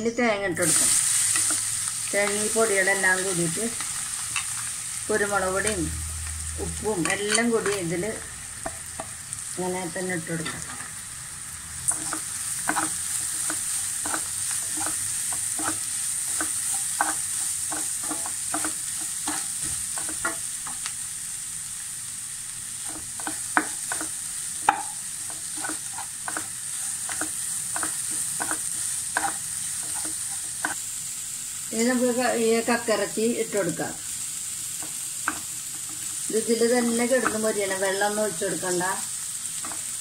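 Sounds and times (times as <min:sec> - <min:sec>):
spices sizzling in hot oil: 0:00.1 - 0:40.0
wooden spatula scraping a pan: 0:11.9 - 0:20.4, 0:22.9 - 0:30.8.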